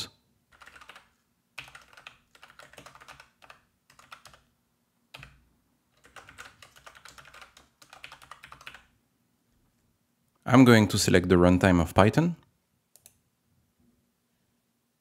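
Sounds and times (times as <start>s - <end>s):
typing on computer keyboard: 0.5s - 4.5s, 5.1s - 8.9s, 12.9s - 13.2s.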